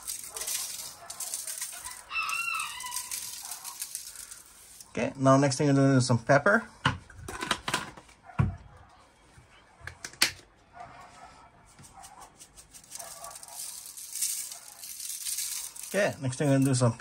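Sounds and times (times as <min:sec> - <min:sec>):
pepper shaker rattling: 0:00.0 - 0:04.9, 0:12.1 - 0:17.0.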